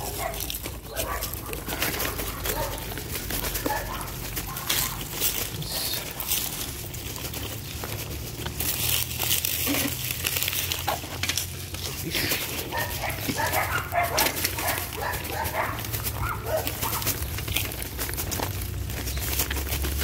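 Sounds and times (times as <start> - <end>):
dog barking: 0.0 - 5.0, 12.6 - 17.2
footsteps on dry ground: 0.0 - 20.0.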